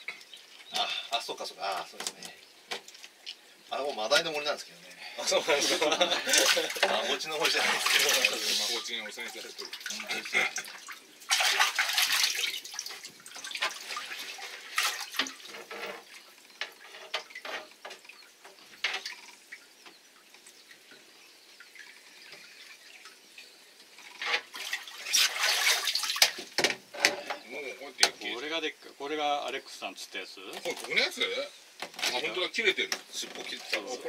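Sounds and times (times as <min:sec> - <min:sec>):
water splashing and sloshing: 0:05.3 - 0:28.3
water streaming off net: 0:05.5 - 0:18.1, 0:24.2 - 0:26.7.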